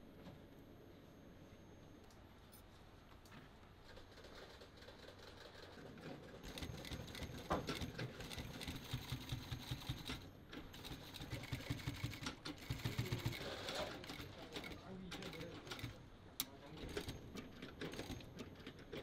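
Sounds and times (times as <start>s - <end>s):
sewing machine stitching: 3.9s - 16.0s, 16.8s - 19.0s.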